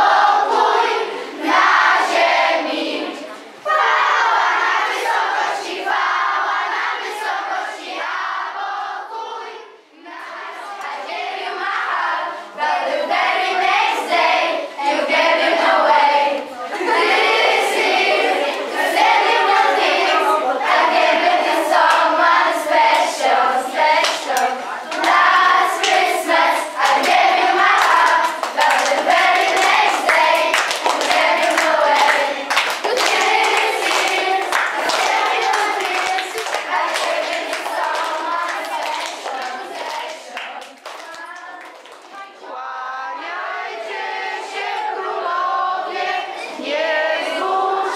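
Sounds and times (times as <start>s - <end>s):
children singing together: 0.0s - 47.9s
hands clapping: 21.8s - 22.1s, 24.0s - 26.2s, 26.8s - 42.5s.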